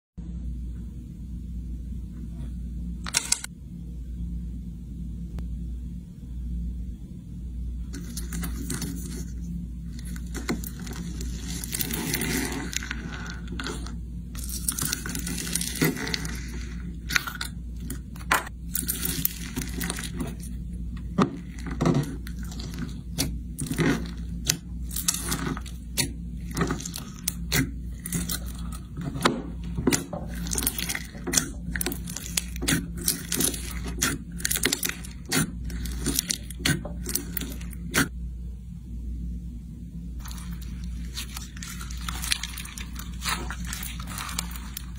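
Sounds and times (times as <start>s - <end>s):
low hum: 0.2s - 44.9s
slime crackling: 10.0s - 38.1s, 40.2s - 44.9s.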